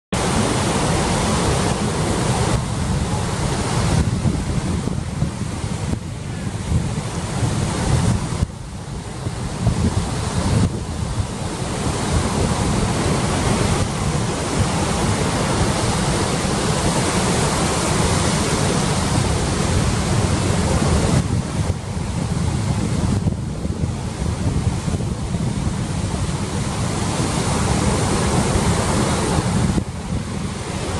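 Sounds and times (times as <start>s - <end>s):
surf breaking on beach: 0.2s - 30.9s
wind buffeting microphone: 0.2s - 30.9s.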